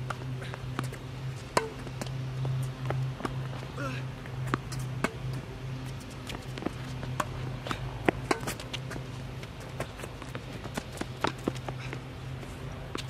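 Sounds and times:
steady low hum: 0.0s - 13.0s
tennis ball struck by rackets: 1.5s - 1.9s, 7.2s - 8.7s
tennis ball bouncing on hard court: 1.5s - 2.1s, 4.4s - 5.4s, 6.2s - 9.0s.

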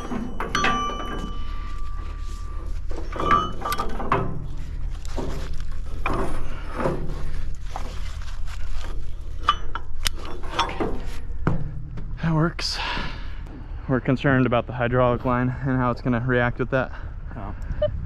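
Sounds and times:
metal shackle clinking on steel: 0.0s - 11.2s
steady low hum: 0.0s - 18.0s.

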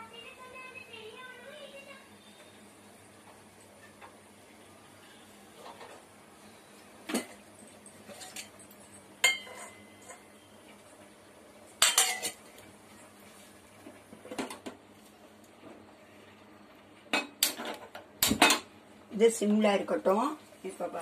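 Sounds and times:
metal spoon clinking on pot: 9.2s - 10.2s, 11.8s - 12.4s.

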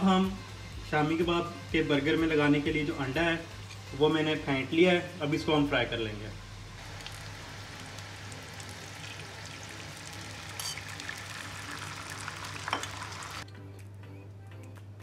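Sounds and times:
egg sizzling in hot oil: 6.8s - 13.4s.

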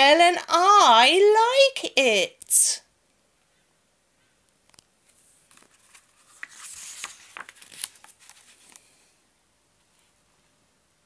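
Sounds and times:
book page turning: 4.7s - 9.1s.

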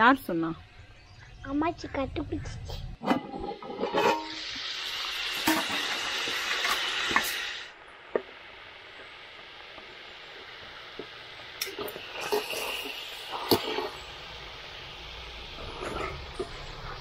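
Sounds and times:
chicken sizzling in oil: 4.0s - 17.0s.

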